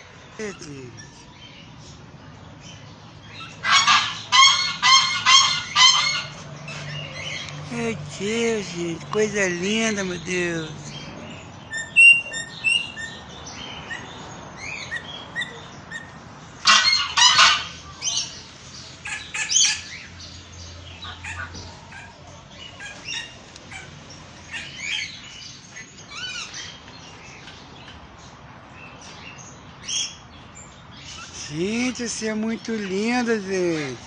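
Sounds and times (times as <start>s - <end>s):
parrots screeching: 3.3s - 7.4s, 13.9s - 18.4s
parrots chirping and whistling: 11.7s - 13.2s.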